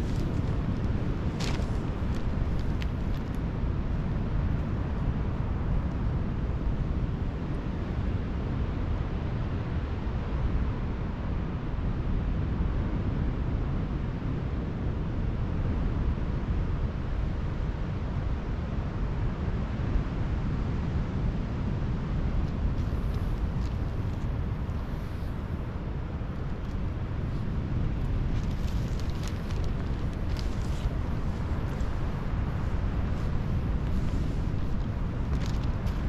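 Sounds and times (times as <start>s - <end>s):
wind buffeting microphone: 0.0s - 8.3s, 20.7s - 36.0s.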